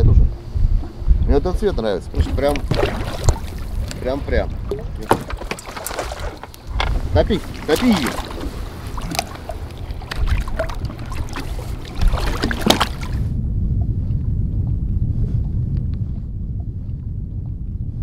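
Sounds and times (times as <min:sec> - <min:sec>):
steady low rumble: 0:00.0 - 0:18.0
water splashing beside boat: 0:02.1 - 0:13.3
sharp knocks: 0:05.0 - 0:07.0.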